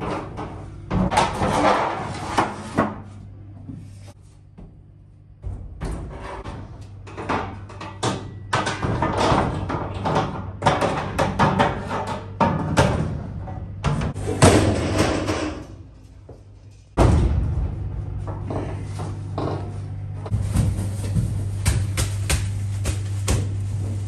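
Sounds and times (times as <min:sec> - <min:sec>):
loud metal bang: 0:17.0 - 0:18.2.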